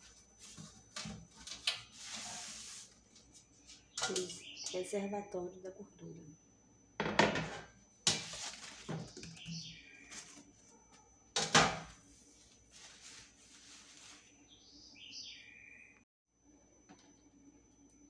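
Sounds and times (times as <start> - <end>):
packing sheets rustling and crinkling: 8.1 - 9.4, 10.0 - 10.6, 12.1 - 14.3.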